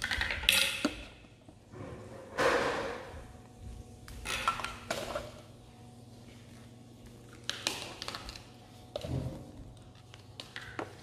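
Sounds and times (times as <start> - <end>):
plastic toys clattering on tiles: 0.0 - 1.2, 4.2 - 5.4, 10.1 - 11.0.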